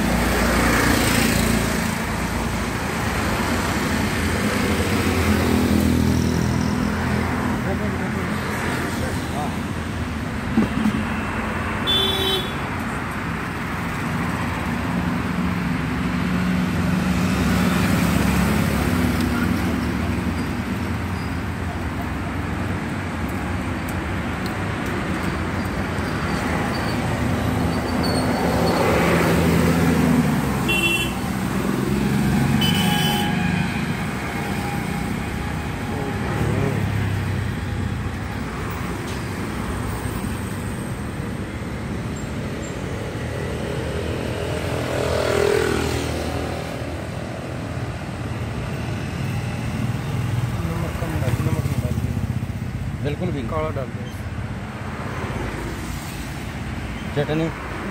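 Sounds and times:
vehicles passing: 0.0s - 57.9s
horn toots: 30.7s - 31.2s, 32.5s - 33.6s.

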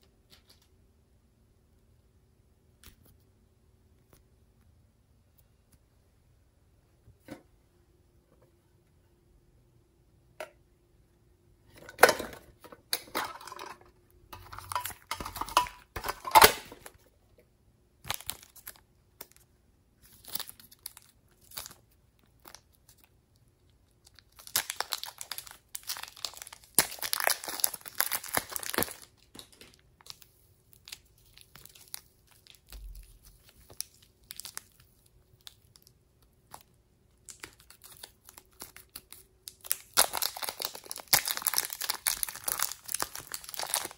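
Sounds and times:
plastic bags crinkling: 12.0s - 17.0s, 18.1s - 19.4s, 24.0s - 43.9s.

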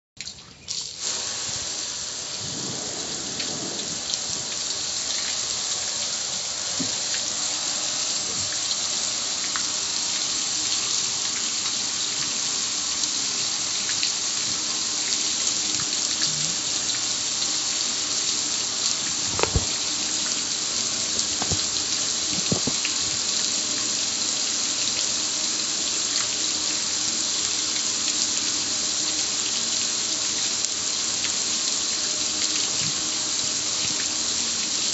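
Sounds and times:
hose spray hitting grill lid: 19.3s - 19.8s.

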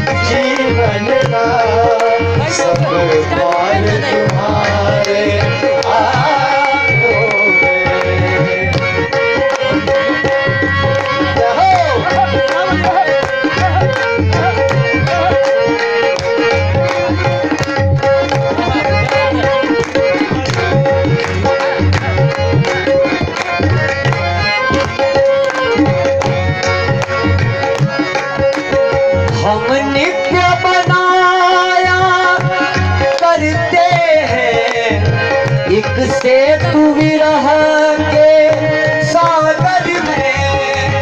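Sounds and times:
person singing: 0.0s - 8.8s
hand drum rhythm: 0.0s - 41.0s
harmonium playing: 0.0s - 41.0s.

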